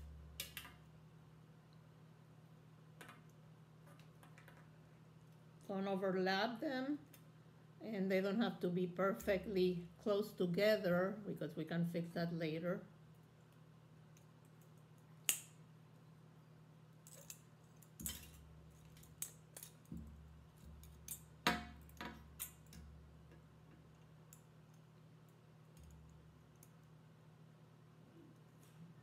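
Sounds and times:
faint steady hum: 0:00.0 - 0:29.0
wire clicking and scraping: 0:17.0 - 0:26.9.

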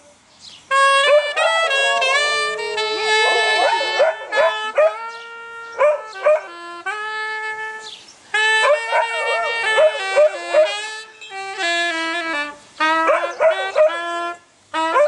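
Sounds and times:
clarinet playing long notes: 0:00.7 - 0:15.0
dog howling and yipping: 0:01.0 - 0:05.2, 0:05.8 - 0:06.5, 0:08.6 - 0:10.8, 0:13.0 - 0:14.0.

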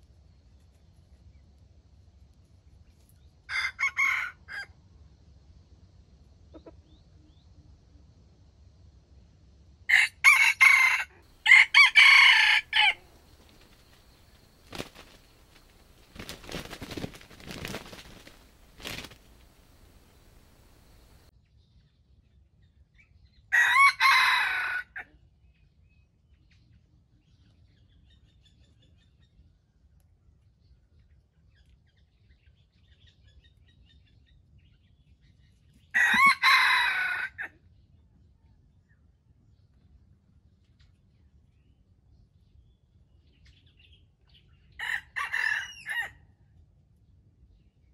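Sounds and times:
rooster crowing: 0:03.5 - 0:04.7, 0:09.9 - 0:21.3, 0:23.5 - 0:25.0, 0:36.0 - 0:37.5, 0:44.8 - 0:46.1
rustling in dry leaves: 0:11.4 - 0:21.3
faint bird chirps: 0:11.5 - 0:21.3.

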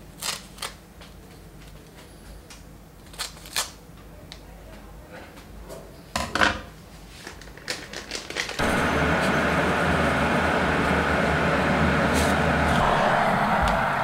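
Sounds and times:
electric kettle heating water: 0:08.6 - 0:14.0.

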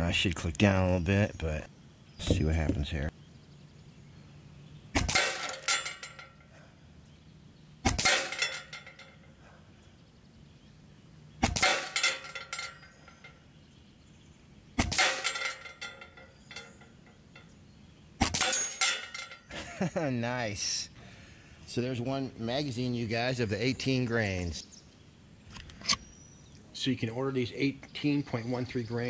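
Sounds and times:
metallic ringing clatter: 0:05.0 - 0:06.7, 0:07.9 - 0:09.5, 0:11.4 - 0:13.6, 0:14.8 - 0:17.6, 0:18.2 - 0:19.8
air rifle shots: 0:07.8 - 0:08.5, 0:11.4 - 0:12.0, 0:14.8 - 0:15.4.

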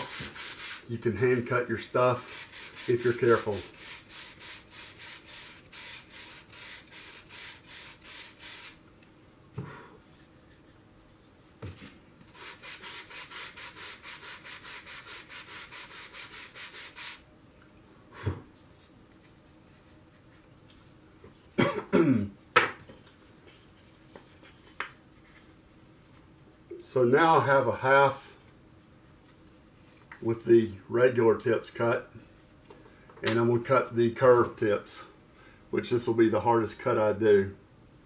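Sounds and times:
person coughing: 0:21.6 - 0:22.4.

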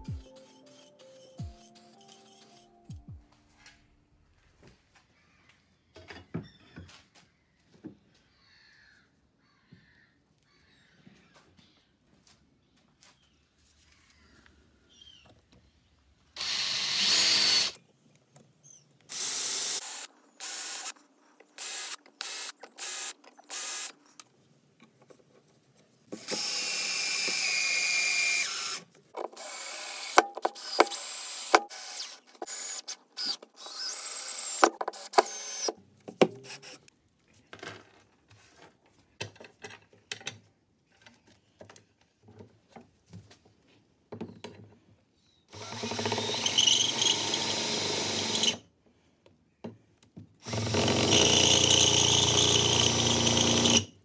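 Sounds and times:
cordless drill driving screws: 0:16.4 - 0:17.8, 0:19.1 - 0:21.0, 0:21.6 - 0:24.0, 0:26.2 - 0:35.8, 0:45.5 - 0:48.6, 0:50.4 - 0:53.9.

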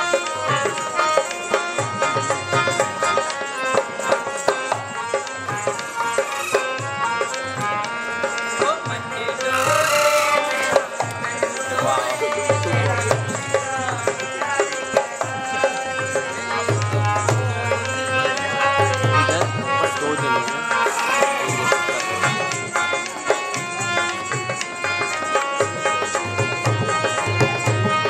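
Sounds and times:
droning melody: 0:05.2 - 0:07.9, 0:09.4 - 0:13.0
hand drum beating: 0:08.6 - 0:15.5.

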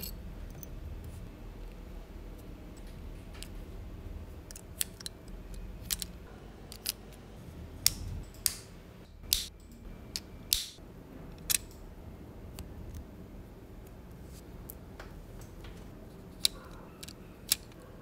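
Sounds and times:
plastic parts clicking and snapping: 0:04.5 - 0:06.1, 0:16.4 - 0:17.8.

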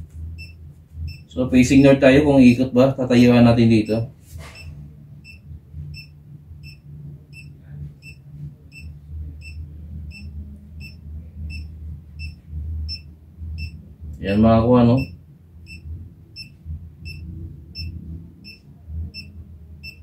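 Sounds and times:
faint low hum: 0:00.0 - 0:20.0
short high beeps: 0:15.0 - 0:15.8.

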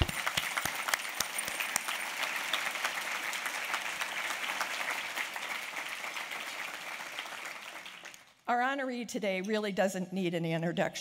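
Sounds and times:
audience applauding: 0:00.0 - 0:08.3.

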